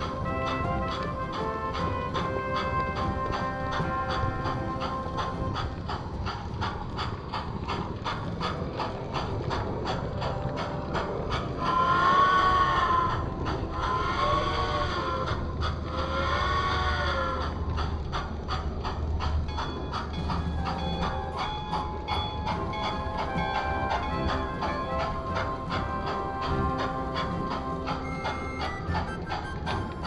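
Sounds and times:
steam whistle blasts: 0.0s - 5.8s, 22.5s - 30.0s
model locomotive clicking: 0.0s - 30.0s.

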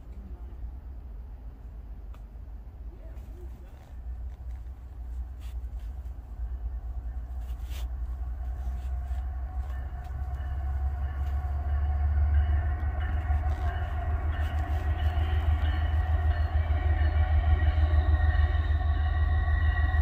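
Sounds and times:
diesel train engine rumble: 0.0s - 20.0s
steady higher tones: 6.4s - 20.0s.

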